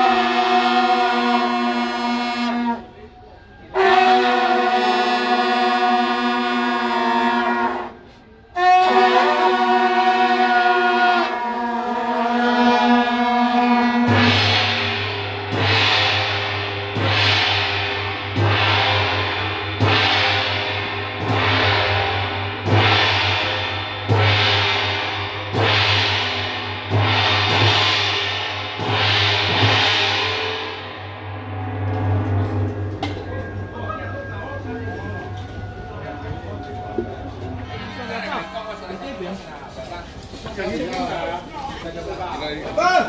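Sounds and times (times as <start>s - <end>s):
gongs struck ringing: 14.0s - 36.5s.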